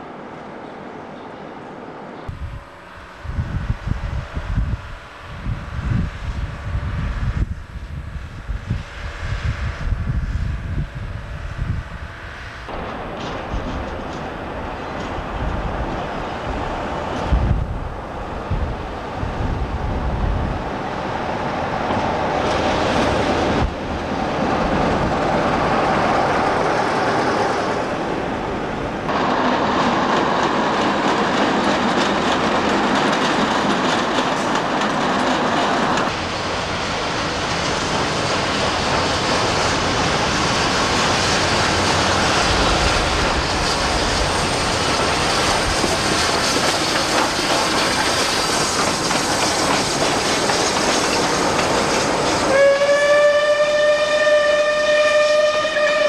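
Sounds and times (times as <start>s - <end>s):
train rumbling on track: 0.0s - 56.0s
steam whistle: 52.4s - 56.0s.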